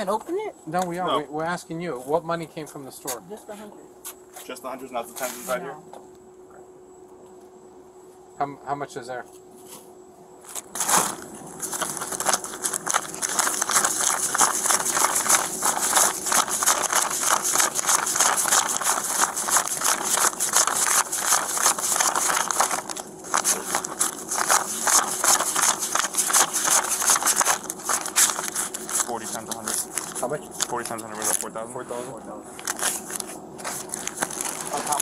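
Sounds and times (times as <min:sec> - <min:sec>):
banknotes rustling: 0:10.4 - 0:35.0
plastic bag crinkling: 0:10.6 - 0:31.5, 0:32.5 - 0:35.0.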